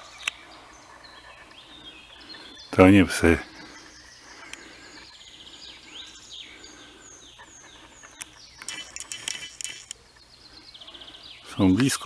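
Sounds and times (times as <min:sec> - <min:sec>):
songbirds whistling: 0:00.0 - 0:12.0.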